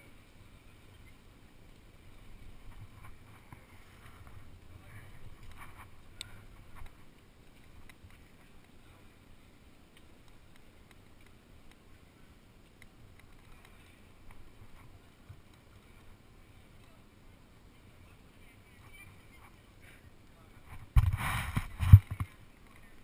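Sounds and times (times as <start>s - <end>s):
light clicks and taps on rock: 5.2s - 9.0s, 9.9s - 17.1s, 21.8s - 23.0s
wind rumble on microphone: 20.6s - 23.0s.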